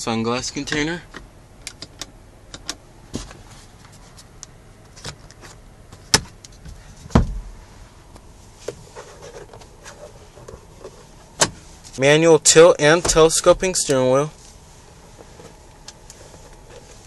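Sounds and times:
dull thump: 7.1 - 7.5
sun visor moved: 8.4 - 12.0, 12.8 - 17.0.

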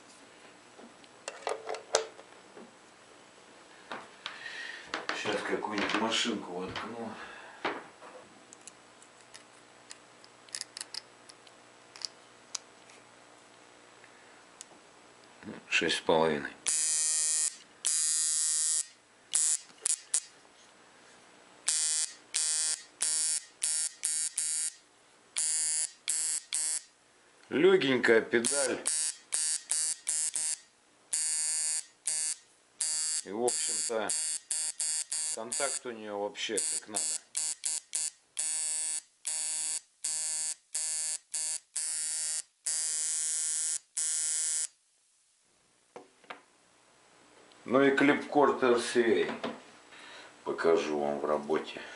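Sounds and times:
tattoo machine buzzing: 16.7 - 20.3, 21.7 - 24.8, 25.4 - 26.9, 28.4 - 35.8, 36.6 - 44.7.

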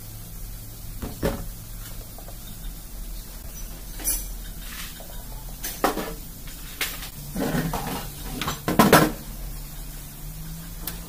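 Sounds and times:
engine parts clinking and clanking: 3.4 - 10.0.

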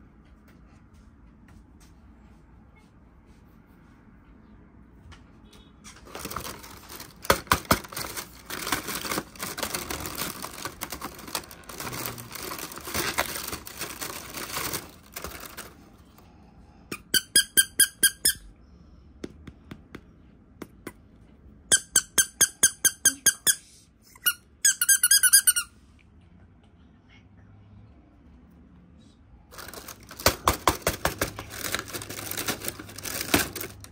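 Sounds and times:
rustling handling noise: 5.9 - 16.3, 29.5 - 33.9
squeaky toy squeaking: 16.9 - 18.5, 21.7 - 25.8.

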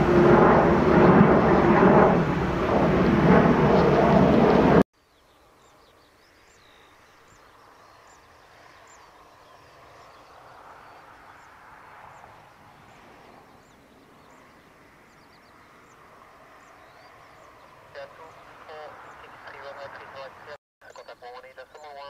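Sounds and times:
distant jet engine: 0.0 - 4.9, 6.3 - 22.0
small birds chirping: 5.0 - 22.0.

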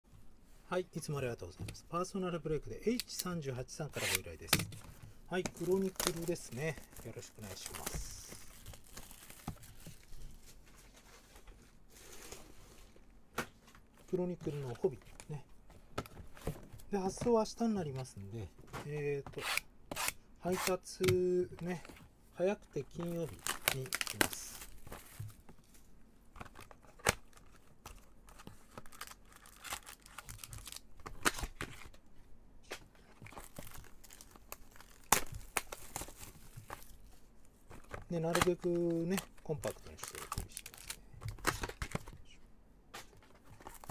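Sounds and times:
packaging tearing and crinkling: 5.4 - 10.1, 22.9 - 25.3, 26.5 - 31.9, 33.2 - 36.9, 38.3 - 42.0.

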